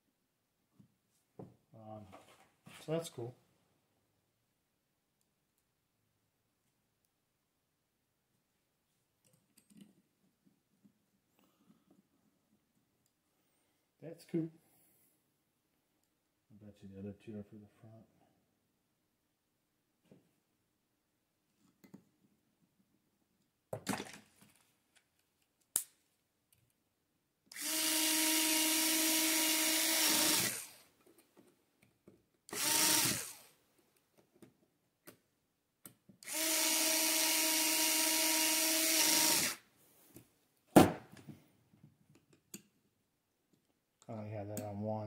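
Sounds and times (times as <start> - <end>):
cordless screwdriver motor whine: 27.5 - 30.8, 32.5 - 33.5, 36.2 - 39.6.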